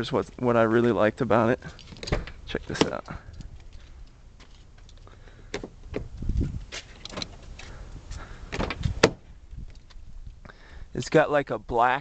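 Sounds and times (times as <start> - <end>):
handheld camera rumble and rustle: 0.0 - 11.9.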